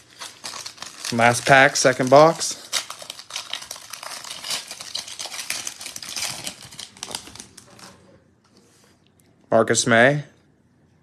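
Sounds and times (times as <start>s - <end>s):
foil pack tearing and crinkling: 0.0s - 7.9s.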